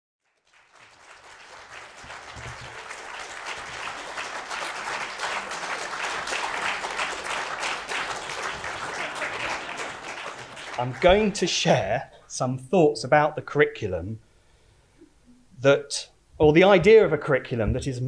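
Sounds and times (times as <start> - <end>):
audience applauding: 0.2 - 11.7.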